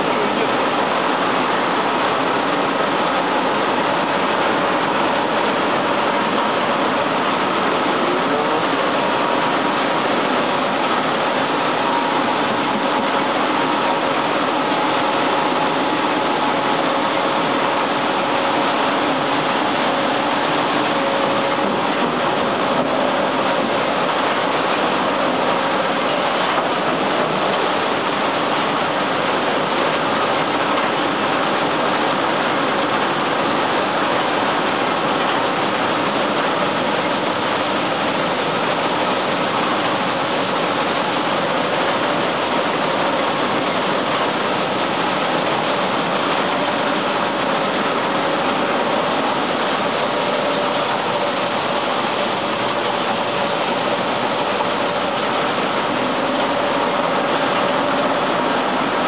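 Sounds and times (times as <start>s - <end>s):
machine noise: 0.0s - 59.0s.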